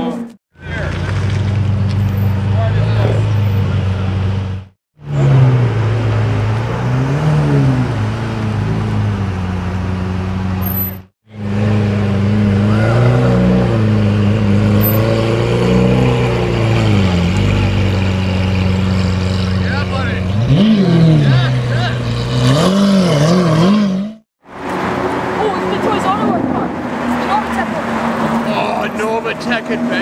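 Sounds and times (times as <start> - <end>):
car engine idling with revs: 0.6 - 24.1.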